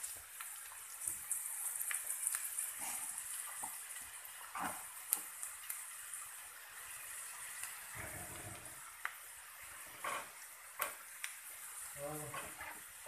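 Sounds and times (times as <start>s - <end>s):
onions sizzling in hot oil: 0.0s - 13.0s
wooden spatula scraping a pan: 4.5s - 4.9s, 7.9s - 8.9s, 9.6s - 11.0s, 12.0s - 13.0s.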